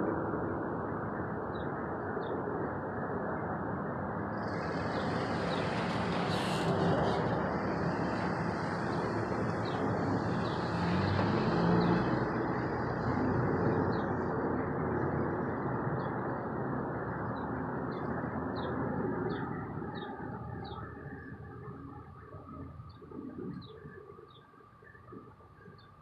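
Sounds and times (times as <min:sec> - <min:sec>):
distant vehicle roar: 0:04.2 - 0:24.4.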